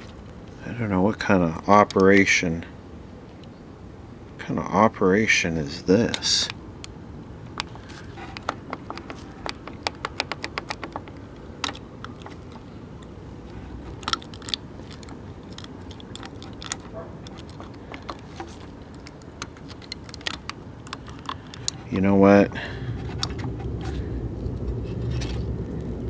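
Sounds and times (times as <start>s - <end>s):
low steady hum: 0.0s - 26.0s
clicks and taps of handling: 6.1s - 13.1s, 13.8s - 21.9s.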